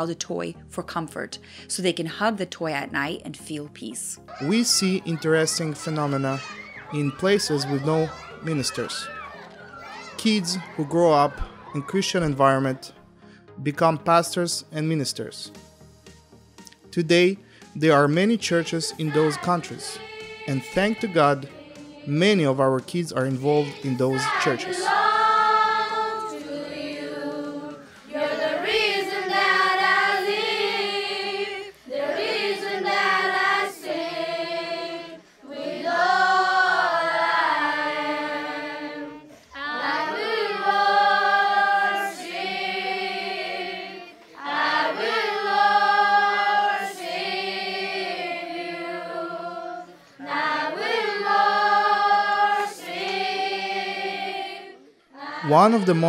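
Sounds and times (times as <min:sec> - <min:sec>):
children singing in chorus: 0:04.4 - 0:12.0, 0:18.7 - 0:22.4, 0:23.3 - 0:56.0.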